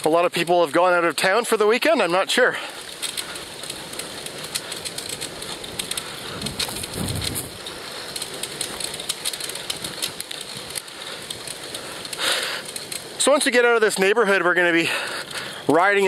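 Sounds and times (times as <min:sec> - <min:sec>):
bicycle tyres on rough path: 0:00.0 - 0:16.0
low rumble: 0:06.2 - 0:07.7.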